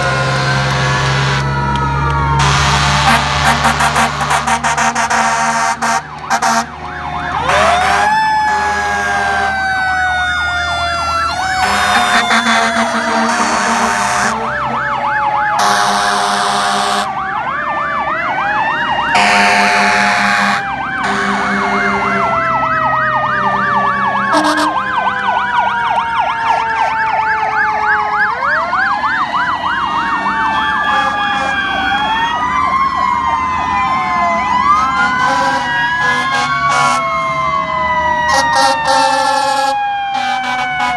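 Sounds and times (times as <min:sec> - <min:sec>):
fire engine sirens wailing: 0:00.0 - 0:40.9
short horn blasts: 0:00.8 - 0:01.5, 0:02.4 - 0:06.7, 0:19.2 - 0:22.4, 0:24.3 - 0:24.8.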